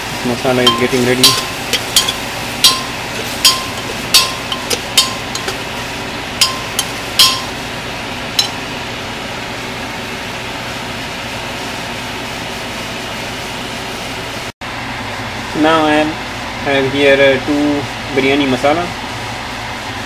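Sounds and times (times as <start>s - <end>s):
metal spoon clinking on pot: 0.6s - 5.7s, 6.4s - 7.6s, 8.4s - 8.6s.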